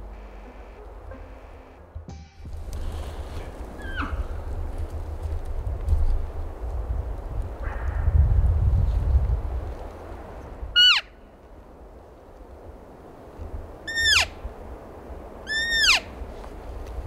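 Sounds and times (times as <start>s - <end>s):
elk mewing calls: 15.5s - 16.1s.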